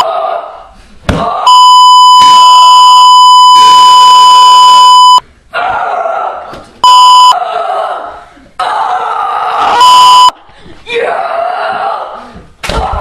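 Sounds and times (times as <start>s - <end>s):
censor bleep: 1.5s - 5.2s, 6.8s - 7.4s, 9.8s - 10.3s.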